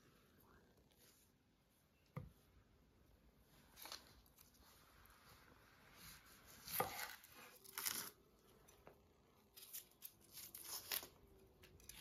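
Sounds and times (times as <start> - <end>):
onion skin crackling and tearing: 6.7 - 8.2, 9.5 - 12.0.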